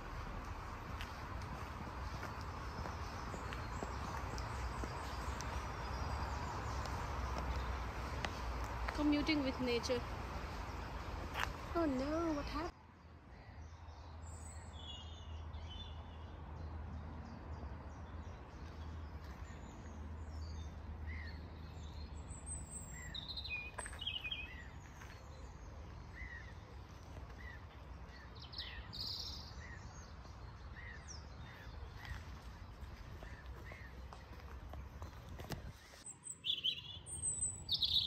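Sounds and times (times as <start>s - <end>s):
birds chirping and trilling: 13.6s - 38.0s.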